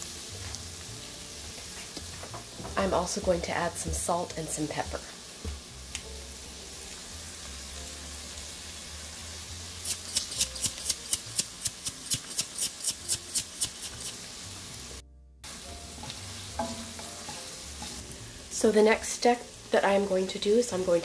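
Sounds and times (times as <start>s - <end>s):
low sizzle: 0.0s - 21.0s
shakers shaking: 9.8s - 14.2s.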